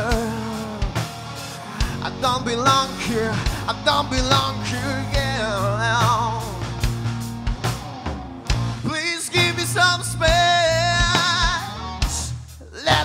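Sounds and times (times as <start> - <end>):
singer singing: 0.0 - 7.0, 8.8 - 13.0
rock band playing live: 0.0 - 13.0.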